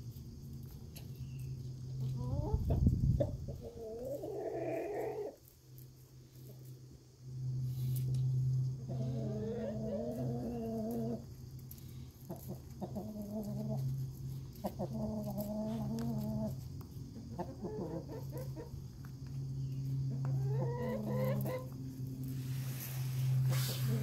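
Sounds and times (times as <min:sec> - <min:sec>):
steady low hum: 0:00.0 - 0:24.0
chickens calling: 0:02.0 - 0:05.5, 0:08.7 - 0:22.0.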